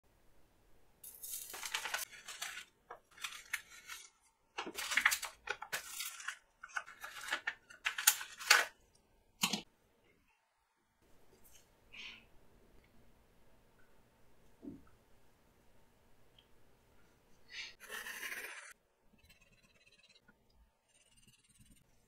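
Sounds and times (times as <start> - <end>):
erasers handled and set down: 1.1 - 8.8
blister pack crinkling and tearing: 1.5 - 8.7.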